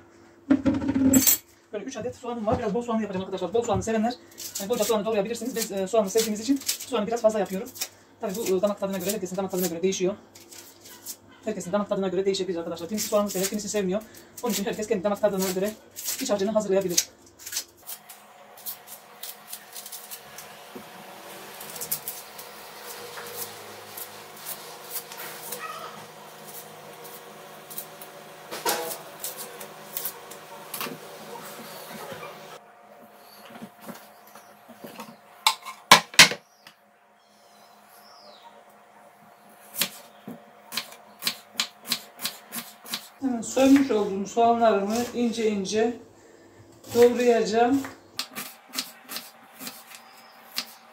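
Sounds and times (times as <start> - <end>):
onion skins crackling: 4.2 - 11.2, 12.7 - 32.5.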